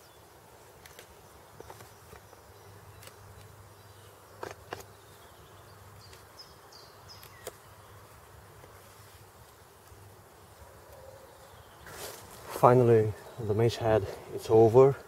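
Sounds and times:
clicks of stone on wood: 0:04.4 - 0:04.9.

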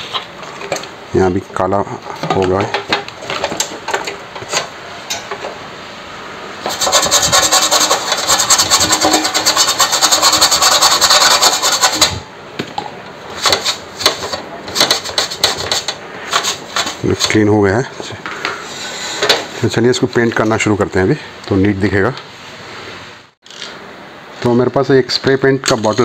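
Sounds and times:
toothbrush scrubbing metal: 0:06.6 - 0:12.2.

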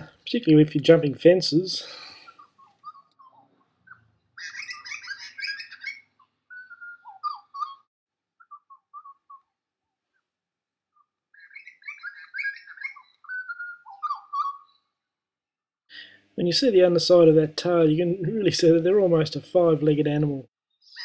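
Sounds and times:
songbird warbling: 0:02.0 - 0:09.5, 0:11.0 - 0:14.9.

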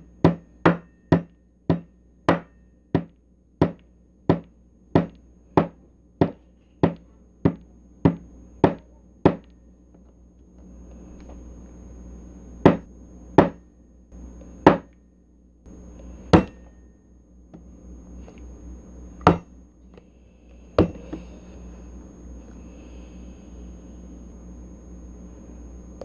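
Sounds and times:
wooden mallet knocking on table: 0:00.3 - 0:09.4, 0:12.6 - 0:12.8, 0:14.7 - 0:14.9.

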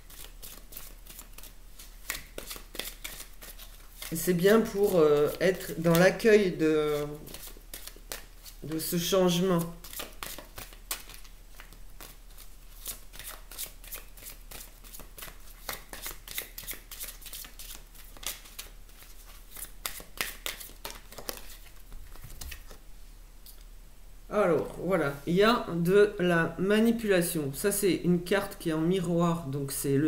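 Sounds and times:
cards being shuffled: 0:00.0 - 0:22.8.

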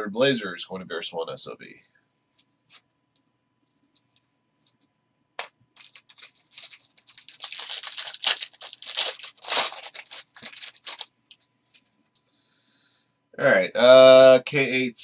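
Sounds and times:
plastic wrapper tearing and crinkling: 0:05.8 - 0:11.4.

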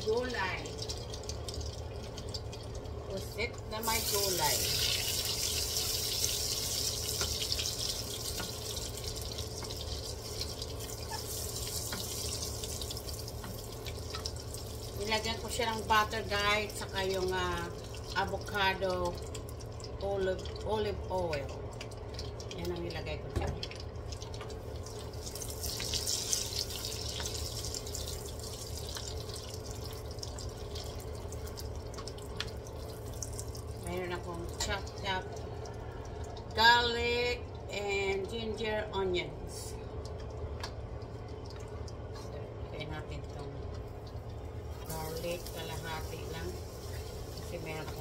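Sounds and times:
steady low hum: 0:00.0 - 0:48.0
butter sizzling in a wok: 0:03.8 - 0:16.9, 0:24.6 - 0:29.2, 0:44.9 - 0:48.0.

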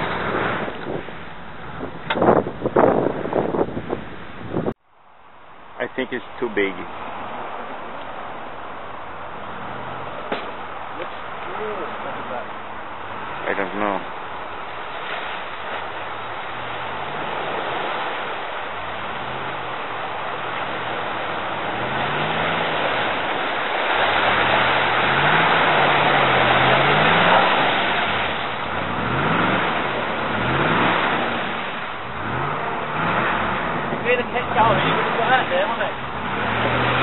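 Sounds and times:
car engine driven hard: 0:00.0 - 0:04.8, 0:06.7 - 0:37.0.

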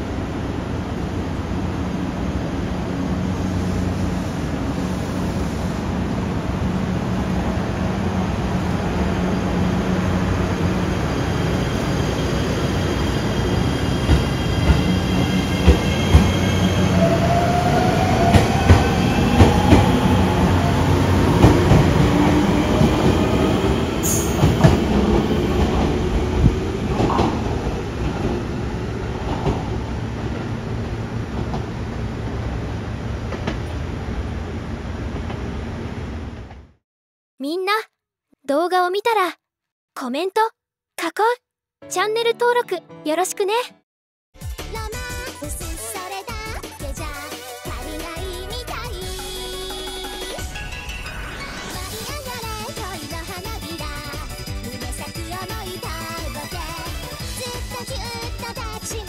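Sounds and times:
electric train motors whining: 0:08.9 - 0:25.2.

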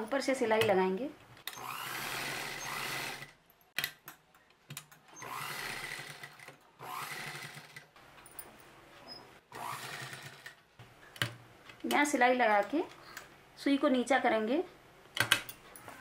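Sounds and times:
sewing machine stitching: 0:01.5 - 0:03.4, 0:05.1 - 0:07.8.

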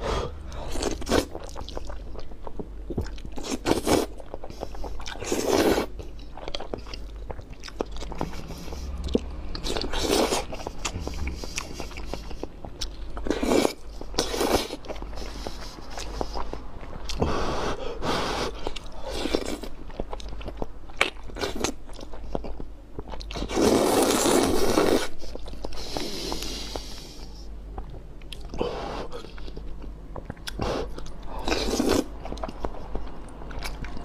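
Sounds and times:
wet chewing and mouth smacks: 0:00.7 - 0:17.2, 0:29.2 - 0:34.0.

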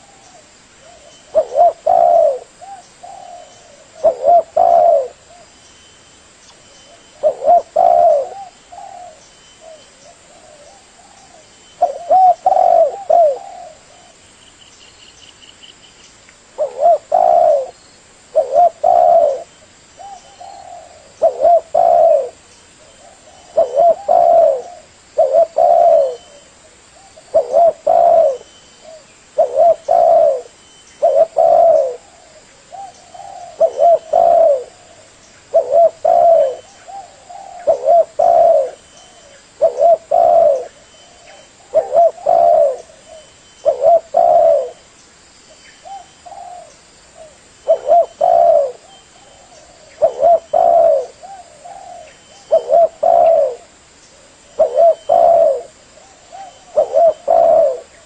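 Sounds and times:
dove cooing: 0:00.0 - 0:05.6, 0:06.7 - 0:14.2, 0:16.5 - 0:44.8, 0:45.8 - 0:58.0.

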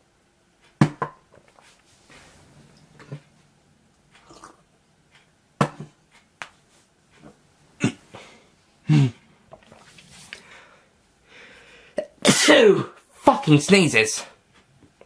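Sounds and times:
man sneezing: 0:08.9 - 0:09.2, 0:12.2 - 0:13.0.

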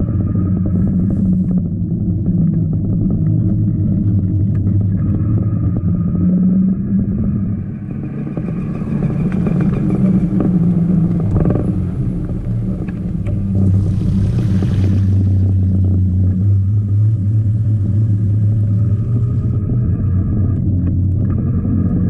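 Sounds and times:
trike rolling on wet pavement: 0:08.0 - 0:19.6.

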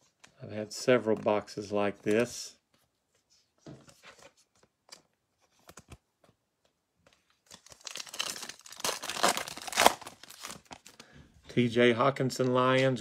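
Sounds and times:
foil wrapper tearing and crinkling: 0:07.5 - 0:10.9.

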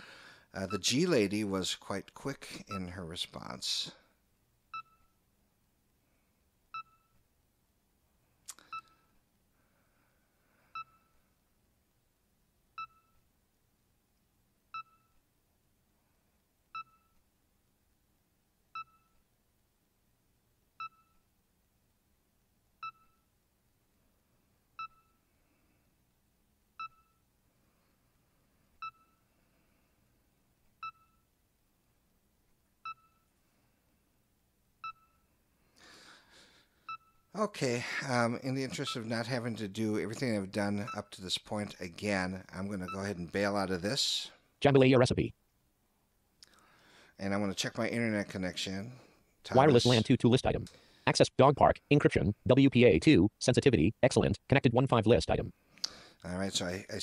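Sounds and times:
short single-pitched beeps: 0:32.8 - 0:33.3, 0:34.8 - 0:35.3, 0:36.9 - 0:37.3.

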